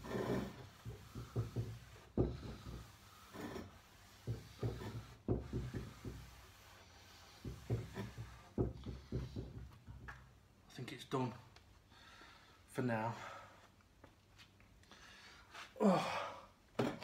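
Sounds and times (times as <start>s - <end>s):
steel wool rubbing wood: 0.0s - 9.9s.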